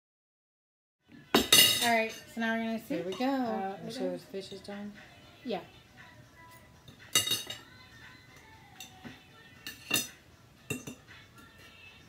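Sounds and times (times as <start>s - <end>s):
forks scraping ceramic plates: 9.6s - 11.0s.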